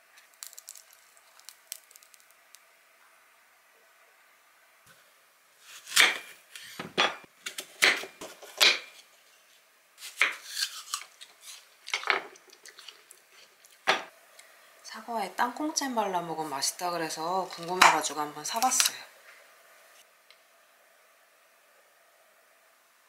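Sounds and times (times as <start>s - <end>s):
knife cutting apple on wooden board: 5.6s - 9.0s, 10.0s - 11.7s.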